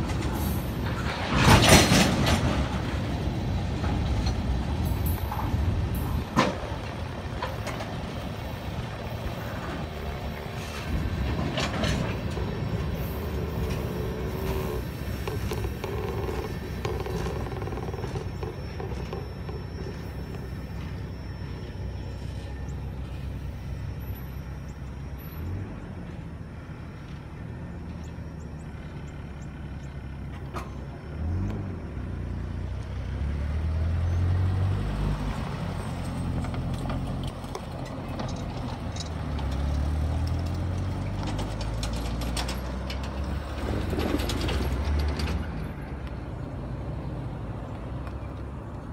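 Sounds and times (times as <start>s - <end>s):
freight cars rolling on rails: 0.0s - 48.9s
low engine rumble: 0.0s - 48.9s.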